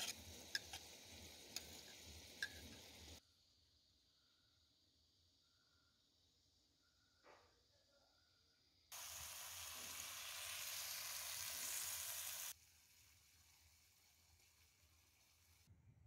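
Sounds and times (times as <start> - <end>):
food sizzling hiss: 0.0 - 3.2, 8.9 - 15.7.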